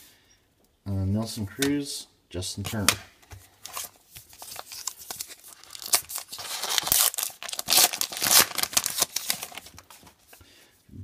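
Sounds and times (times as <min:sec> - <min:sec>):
paper wrapper tearing and crinkling: 0:03.6 - 0:10.0.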